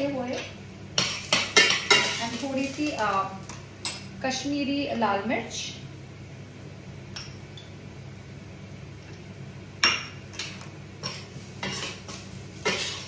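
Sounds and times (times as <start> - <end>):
metal spoon scraping frying pan: 1.0 - 3.0, 11.0 - 13.0.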